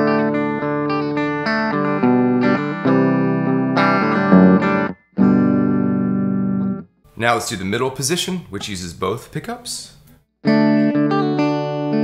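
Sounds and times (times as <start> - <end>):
clean electric guitar chords: 0.0 - 6.8, 10.4 - 12.0.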